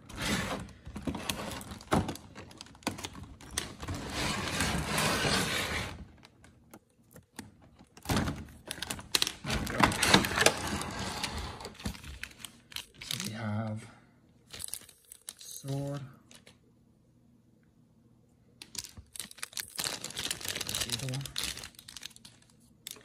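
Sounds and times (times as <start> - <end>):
plastic packaging crinkling: 0.7 - 4.2, 7.2 - 10.8, 11.7 - 13.4, 14.4 - 16.6, 18.6 - 23.0.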